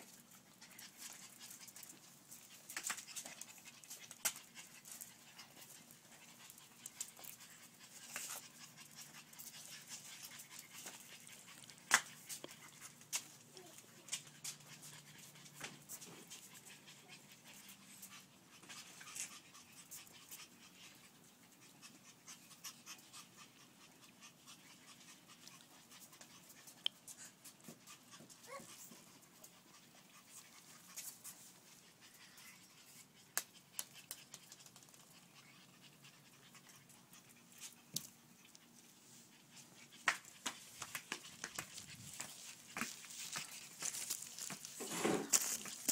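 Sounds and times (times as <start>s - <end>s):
puppies panting: 0.0s - 45.9s
light clicks and scuffs: 39.8s - 45.9s.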